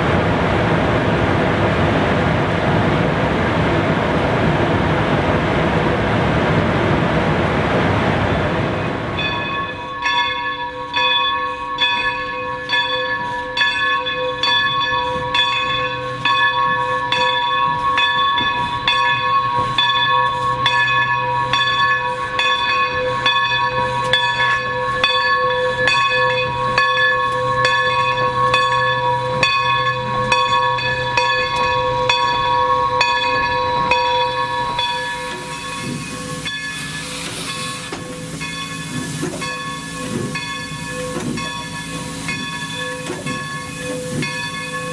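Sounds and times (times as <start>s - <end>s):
steam locomotive bell ringing: 8.6s - 44.9s
steam hiss: 34.0s - 44.9s.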